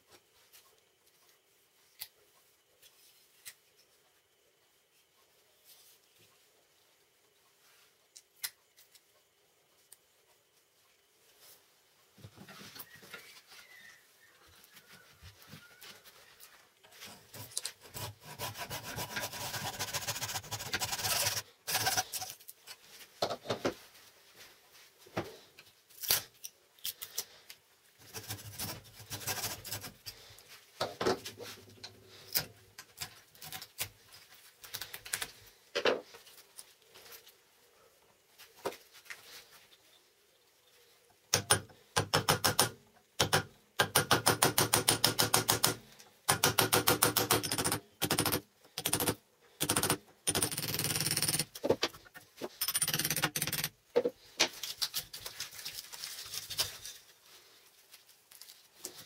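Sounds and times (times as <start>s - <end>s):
prying and scraping clicks: 41.4s - 55.0s.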